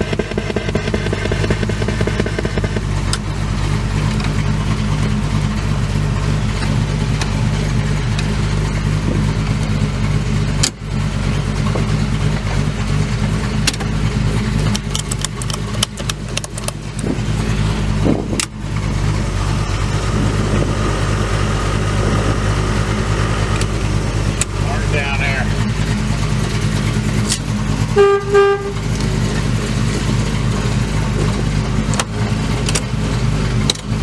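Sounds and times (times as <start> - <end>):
car engine idling: 0.0 - 34.0
sharp clicks: 14.6 - 17.1.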